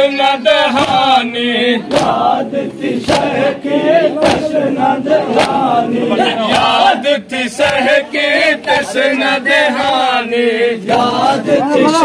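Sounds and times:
men chanting in unison: 0.0 - 12.0
chest-beating slaps: 1.8 - 2.3, 3.0 - 3.4, 4.2 - 4.6, 5.3 - 5.7, 6.5 - 6.8, 7.6 - 7.9.

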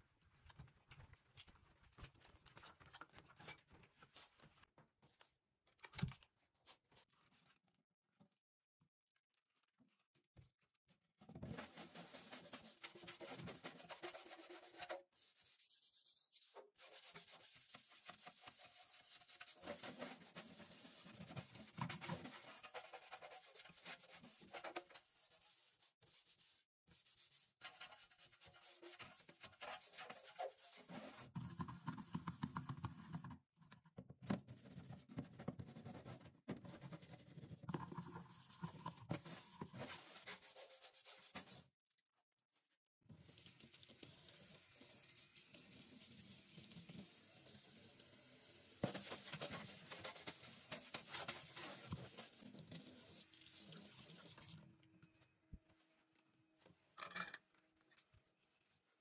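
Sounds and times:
brush scrubbing a metal sink: 11.3 - 33.3, 34.4 - 41.7, 43.1 - 54.6.

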